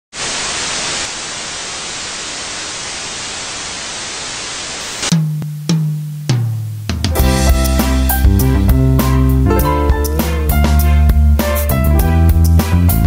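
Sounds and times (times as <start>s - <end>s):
television static hiss: 0.1s - 7.2s
musical hits with bass notes: 5.1s - 13.0s.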